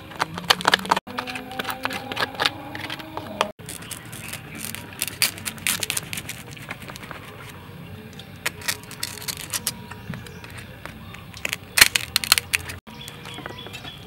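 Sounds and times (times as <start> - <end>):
spoon scraping a metal bowl: 0.5 - 7.5
cleaver clicking on a shell: 8.4 - 12.8.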